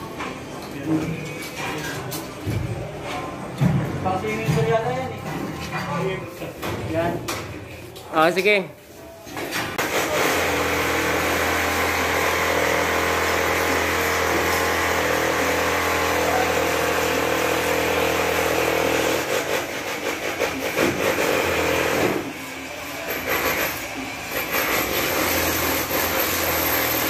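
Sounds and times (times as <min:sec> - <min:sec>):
jackhammer running: 0:24.3 - 0:27.0.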